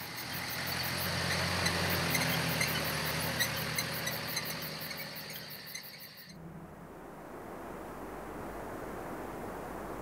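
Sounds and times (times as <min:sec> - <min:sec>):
insects chirping: 0:00.0 - 0:06.4.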